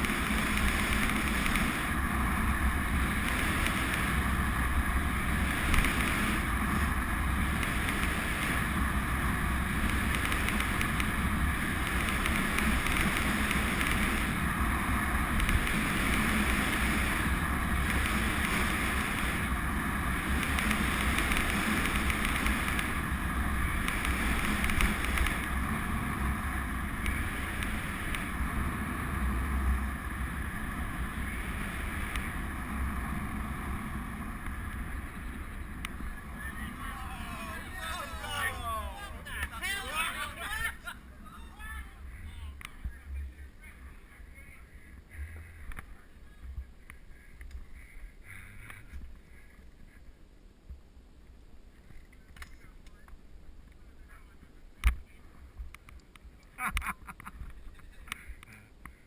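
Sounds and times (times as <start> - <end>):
tyre noise on tarmac: 0.0 - 40.3.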